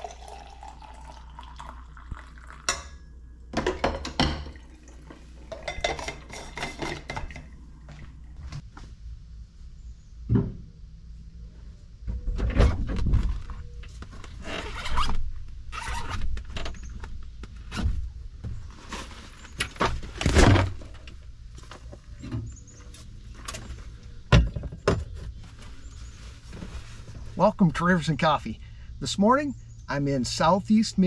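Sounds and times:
dull thumps and knocks: 0:10.3 - 0:10.7.

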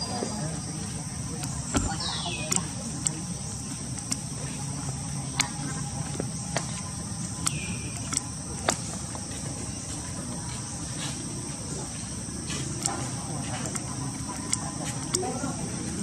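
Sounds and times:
forest insects droning: 0:00.0 - 0:16.0
sharp clicks: 0:03.9 - 0:04.4, 0:06.2 - 0:09.0.

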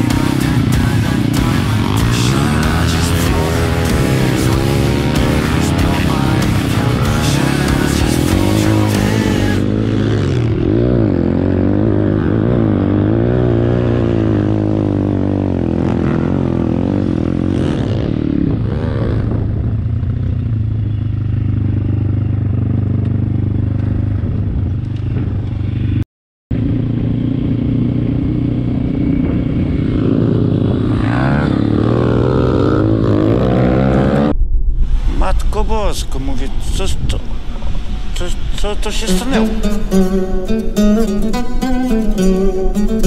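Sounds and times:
motorbike engine revving: 0:00.0 - 0:26.0, 0:26.6 - 0:34.4, 0:37.3 - 0:43.0.

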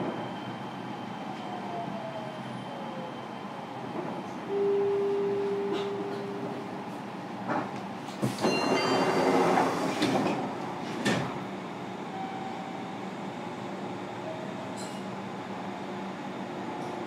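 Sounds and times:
train doors sliding: 0:05.4 - 0:11.6.

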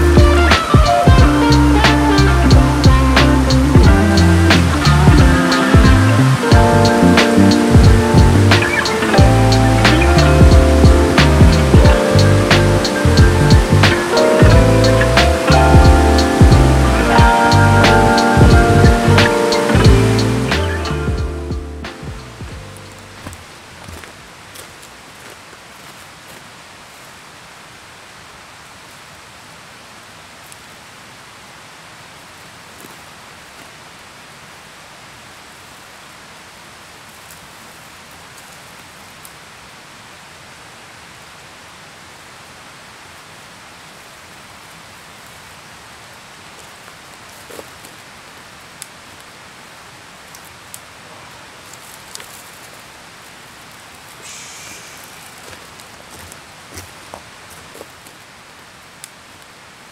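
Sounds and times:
steady outdoor hiss: 0:00.0 - 0:59.9
dry branches snapping and dragging: 0:51.6 - 0:52.8, 0:55.1 - 0:58.2.

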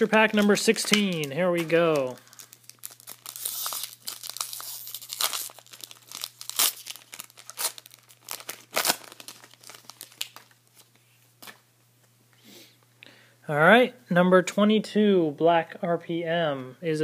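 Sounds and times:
sharp foil crackles: 0:00.0 - 0:10.9
foil wrapper tearing and crinkling: 0:00.0 - 0:11.6.

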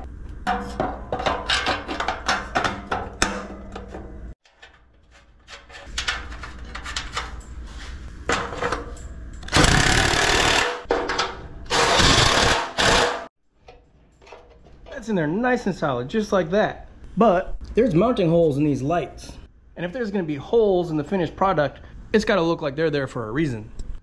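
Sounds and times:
rough mechanical noise bursts: 0:09.5 - 0:10.8, 0:11.7 - 0:13.3.

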